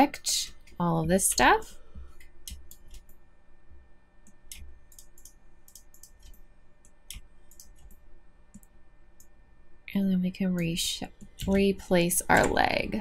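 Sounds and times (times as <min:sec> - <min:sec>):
mouse and keyboard clicking: 0:04.5 - 0:06.4, 0:07.1 - 0:08.7.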